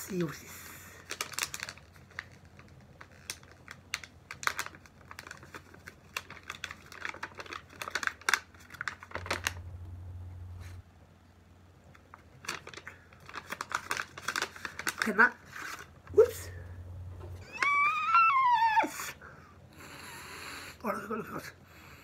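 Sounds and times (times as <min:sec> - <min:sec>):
gift bag clicking and crinkling: 0:01.0 - 0:09.8, 0:11.9 - 0:16.4.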